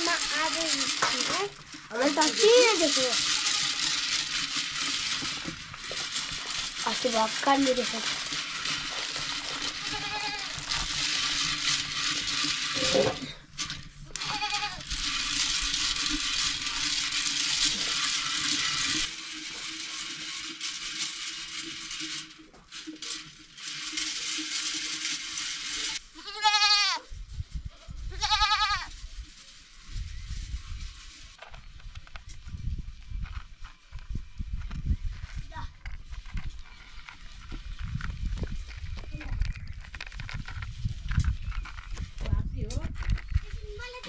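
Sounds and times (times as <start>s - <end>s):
goats bleating: 9.8s - 10.6s, 14.2s - 14.8s, 26.2s - 27.0s.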